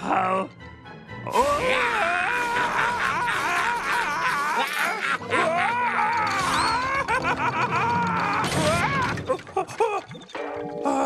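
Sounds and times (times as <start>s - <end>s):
background music: 0.0s - 11.0s
cartoon man screaming: 1.3s - 6.9s.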